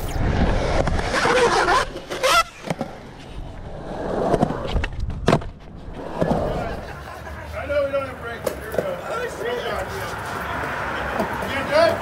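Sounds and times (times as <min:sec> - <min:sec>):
skateboard wheels rolling on concrete: 0:00.0 - 0:12.0
skateboard clacking on concrete: 0:08.4 - 0:09.4.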